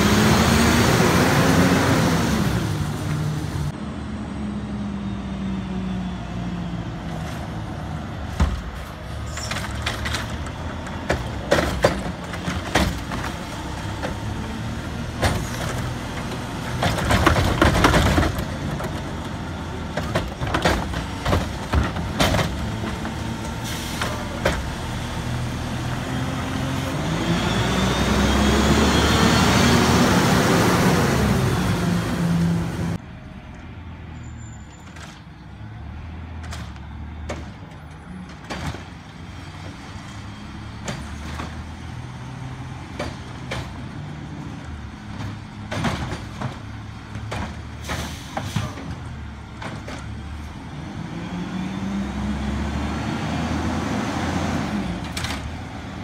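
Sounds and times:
engine revving: 0.0 - 3.8, 24.8 - 33.0, 50.7 - 55.5.

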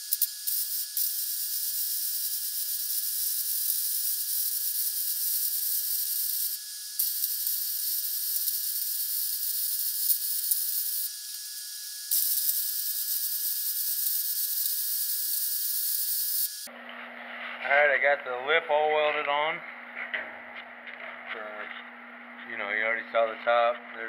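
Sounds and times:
welding arc crackling hiss: 0.0 - 16.7.

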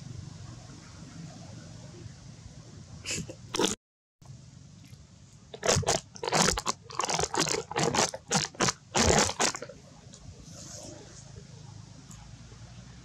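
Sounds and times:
monkey crunching fruit: 3.5 - 3.8, 5.5 - 9.7.

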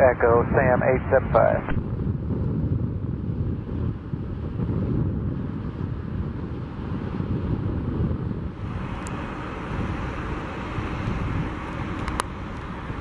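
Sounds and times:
jet engines rumbling: 0.0 - 2.3, 8.3 - 13.0
wind buffeting microphone: 0.0 - 13.0
faint clicks: 12.0 - 12.3.

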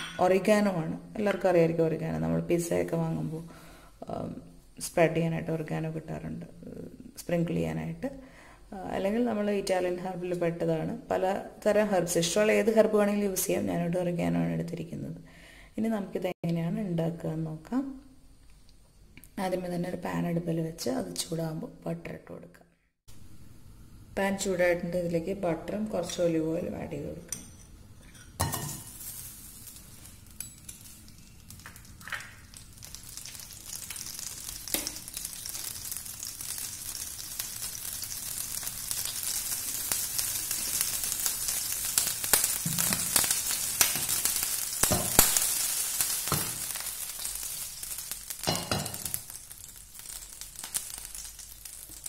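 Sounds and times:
butter sizzling in frying pan: 28.4 - 52.0.

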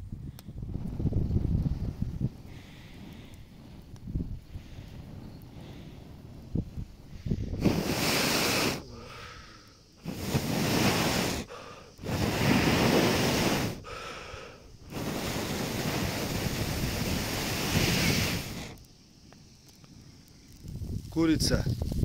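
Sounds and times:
person blowing air: 7.1 - 18.8.

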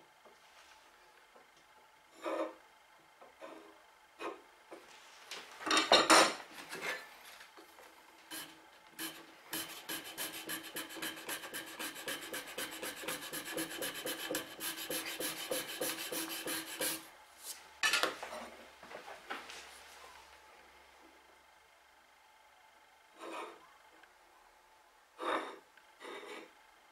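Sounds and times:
block rubbing across wood: 8.3 - 17.0.

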